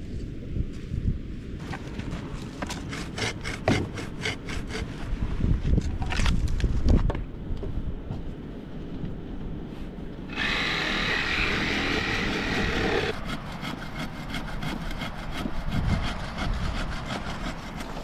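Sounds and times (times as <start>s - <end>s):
hand saw cutting wood: 2.6s - 5.0s, 10.3s - 18.0s.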